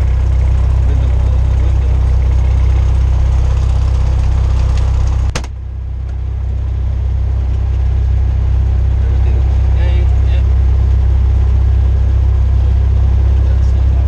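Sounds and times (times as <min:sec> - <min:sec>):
aircraft engine running: 0:00.0 - 0:14.0
sharp click: 0:04.8 - 0:05.6.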